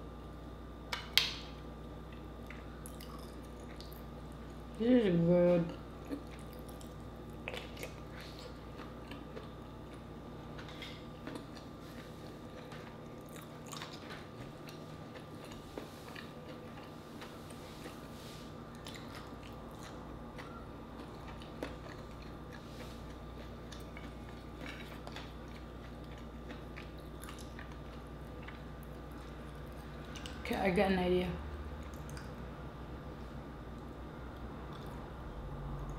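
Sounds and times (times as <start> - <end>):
faint steady hum: 0.0 - 35.9
close-up chewing: 2.1 - 4.7, 6.0 - 30.4
wet mouth clicks and smacks: 31.9 - 32.4.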